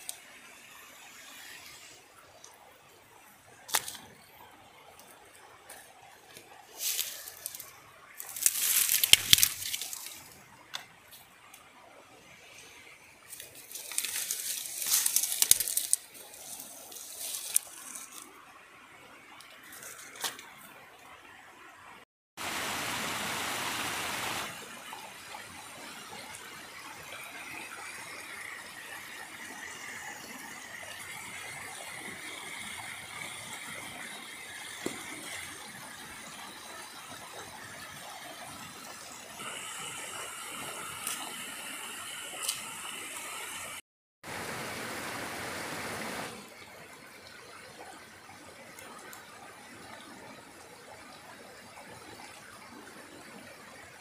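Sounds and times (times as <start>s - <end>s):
stream running over stone: 0.0s - 54.0s
dry sticks and leaves crackling: 3.7s - 4.1s, 5.0s - 11.6s, 13.2s - 18.4s.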